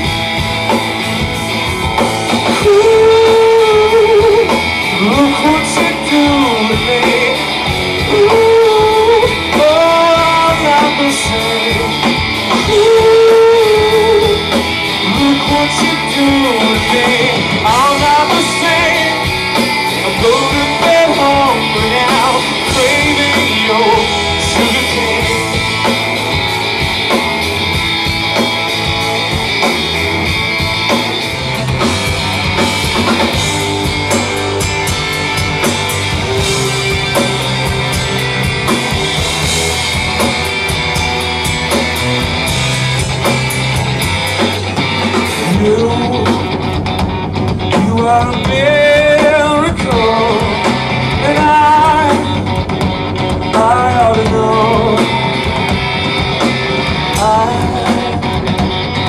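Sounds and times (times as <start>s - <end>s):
drum kit: 0.0s - 59.0s
electric guitar: 0.0s - 59.0s
person singing: 2.4s - 26.0s, 45.2s - 46.8s, 47.6s - 52.6s, 53.4s - 55.7s, 57.1s - 59.0s.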